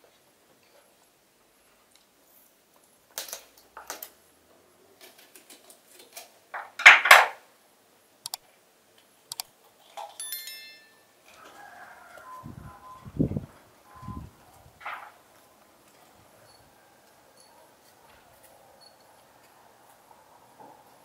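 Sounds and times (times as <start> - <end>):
light clicks: 9.3 - 9.5.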